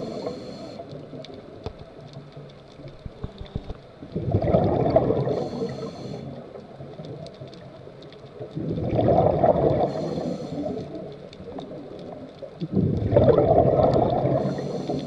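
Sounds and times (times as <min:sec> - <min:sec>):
regulator hiss: 0:00.0 - 0:01.1, 0:05.2 - 0:06.6, 0:09.8 - 0:11.1, 0:14.2 - 0:15.0
faint clicks: 0:00.0 - 0:15.0
underwater exhaled bubbles gurgling: 0:00.0 - 0:15.0.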